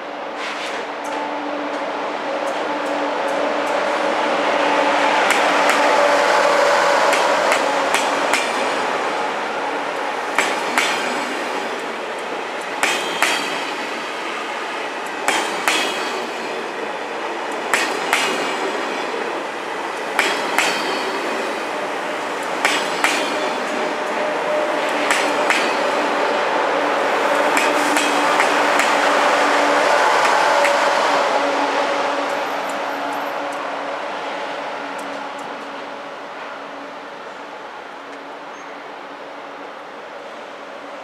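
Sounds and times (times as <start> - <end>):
train hum: 0.0 - 41.0
train wheels clacking over rail joint: 5.2 - 6.1, 6.9 - 9.0, 9.9 - 16.8, 17.5 - 19.1, 19.9 - 26.2, 27.5 - 29.3, 30.2 - 31.0.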